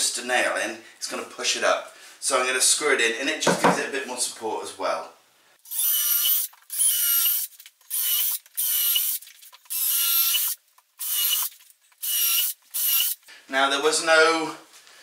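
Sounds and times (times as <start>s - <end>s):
cordless drill whining: 5.7s - 13.2s.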